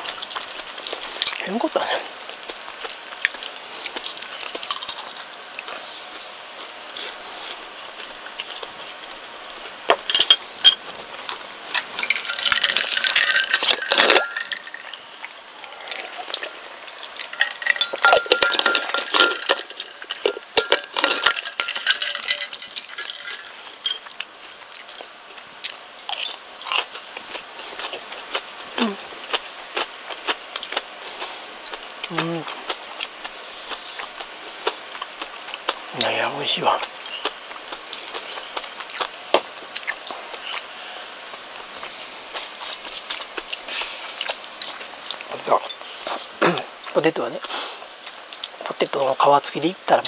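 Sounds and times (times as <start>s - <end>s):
person chewing: 0.0s - 48.6s
chopsticks clinking against dishes: 17.3s - 24.1s.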